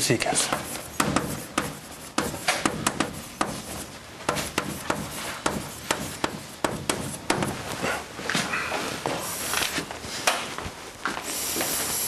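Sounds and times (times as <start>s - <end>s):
chalk writing on blackboard: 0.0s - 7.7s.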